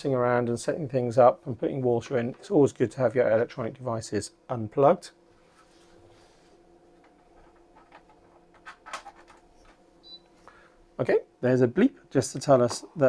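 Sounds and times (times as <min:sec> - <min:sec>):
plug rustling and clicks: 0:07.0 - 0:09.8.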